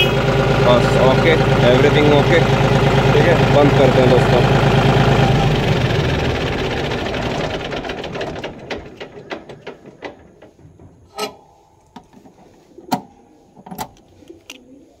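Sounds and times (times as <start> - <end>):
diesel engine shutting down: 0.0 - 10.7.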